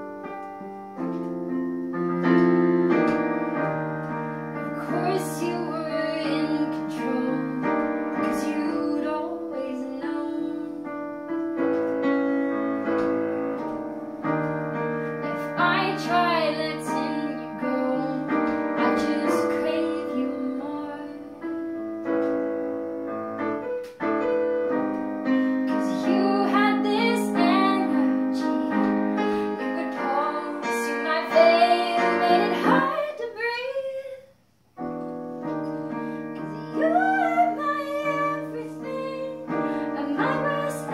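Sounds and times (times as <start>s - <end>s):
digital piano chords: 0.0s - 40.9s
woman singing: 4.6s - 11.0s, 15.2s - 21.6s, 25.5s - 34.3s, 36.3s - 40.9s.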